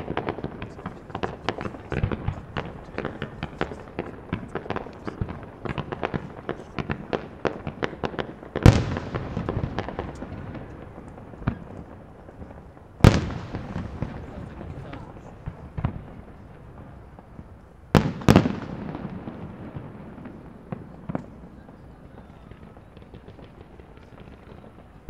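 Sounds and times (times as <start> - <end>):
fireworks crackling pops: 0.0 - 25.0.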